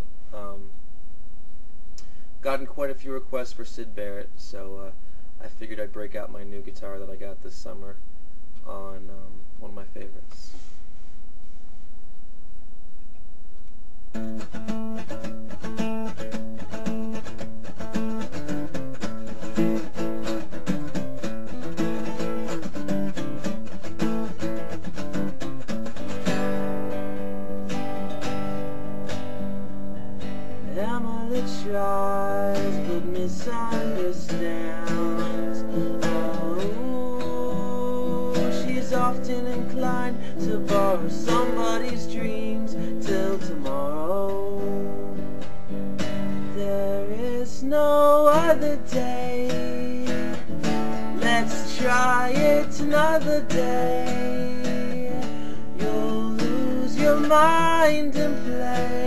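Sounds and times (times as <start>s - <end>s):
acoustic guitar strumming chords: 14.1s - 59.0s
man singing: 30.6s - 45.4s, 46.4s - 59.0s.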